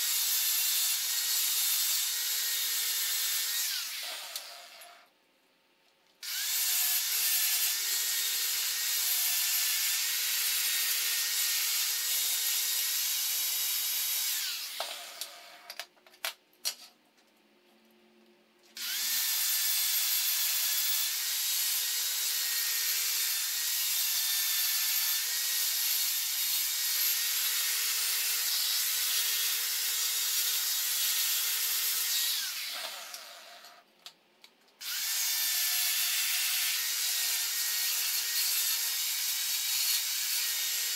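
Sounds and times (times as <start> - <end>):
angle grinder grinding metal: 0.0 - 5.1, 18.8 - 33.8.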